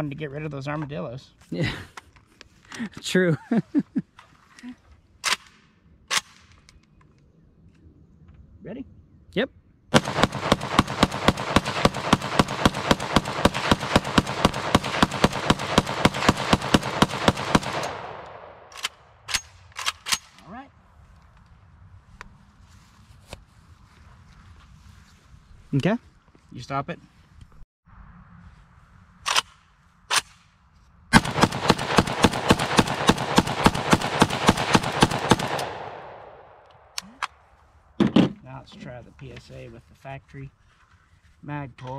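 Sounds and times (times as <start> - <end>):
rifle firing rapid shots: 9.9 - 19.0, 31.1 - 36.6
gunshot echo: 9.9 - 19.4, 31.1 - 37.0.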